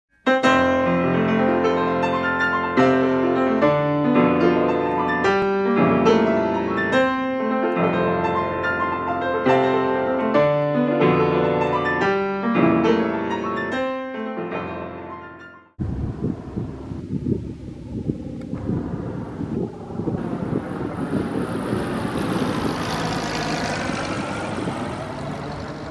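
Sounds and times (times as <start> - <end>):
solo piano chords: 0.3 - 25.9
wind on microphone: 15.8 - 25.9.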